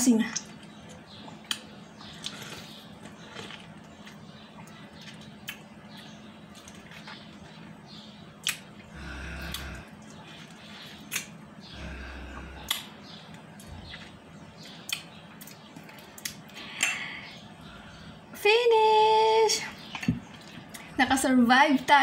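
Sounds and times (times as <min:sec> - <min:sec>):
lip smacks: 0:01.2 - 0:07.5, 0:08.4 - 0:08.8, 0:09.4 - 0:17.0.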